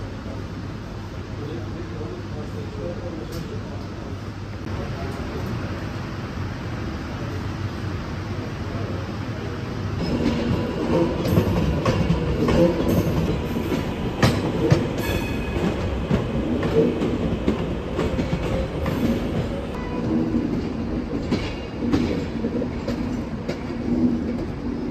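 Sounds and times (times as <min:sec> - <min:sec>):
train rumble: 0:00.0 - 0:24.9
train wheels clattering: 0:10.0 - 0:24.9.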